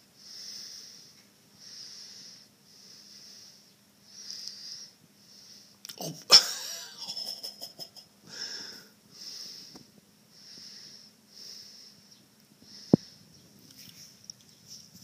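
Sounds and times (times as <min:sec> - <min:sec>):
wheezy whistling breathing: 0:00.2 - 0:05.8, 0:08.3 - 0:13.4.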